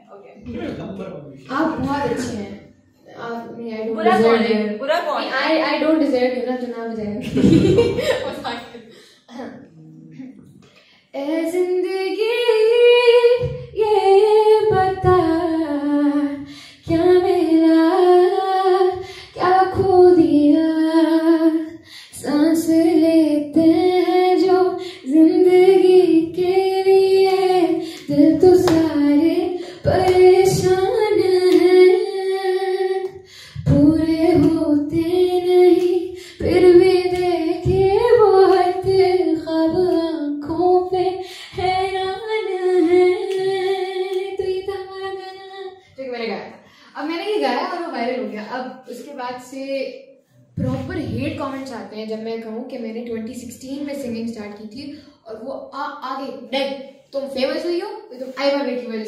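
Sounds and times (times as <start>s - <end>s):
woman singing into microphone: 11.2s - 45.8s.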